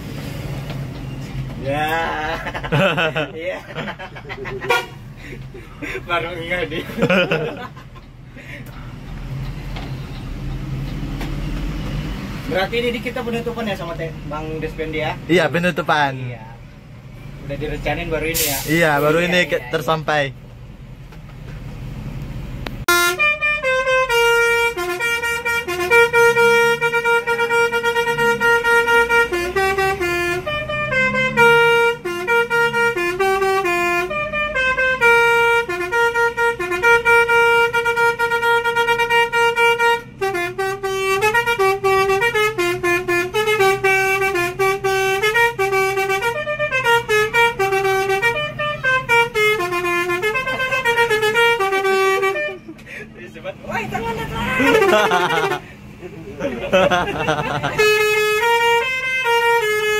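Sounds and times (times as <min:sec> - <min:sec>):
bus musical air horn: 0:04.6 - 0:06.0, 0:18.3 - 0:19.2, 0:22.8 - 0:56.0, 0:56.8 - 0:59.9.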